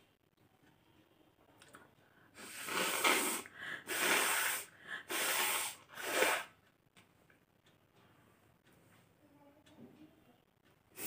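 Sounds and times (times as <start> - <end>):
woman blowing her nose: 2.4 - 6.6.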